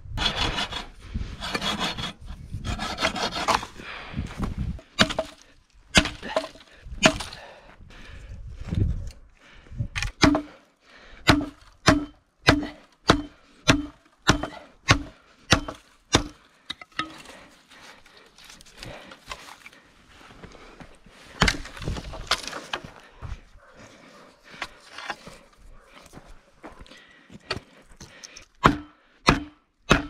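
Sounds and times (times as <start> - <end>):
rustling and cracking wood: 1.4 - 8.2, 15.8 - 23.5, 24.4 - 26.3.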